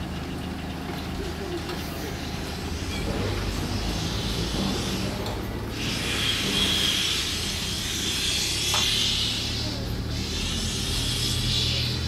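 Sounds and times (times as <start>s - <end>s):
low steady engine hum: 0.0s - 12.0s
steam hissing from locomotive: 1.8s - 12.0s.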